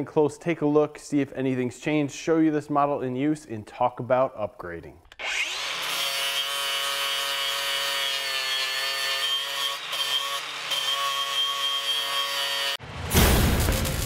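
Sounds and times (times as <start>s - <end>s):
angle grinder cutting steel: 5.1s - 12.8s.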